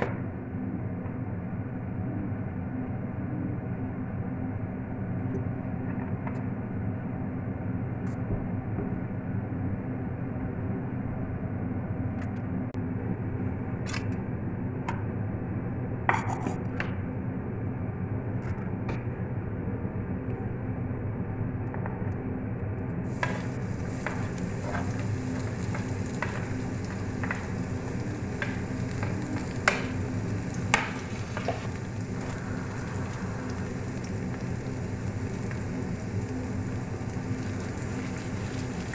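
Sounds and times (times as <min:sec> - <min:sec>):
steady low hum: 0:00.0 - 0:38.9
garlic sizzling in oil: 0:23.1 - 0:38.9.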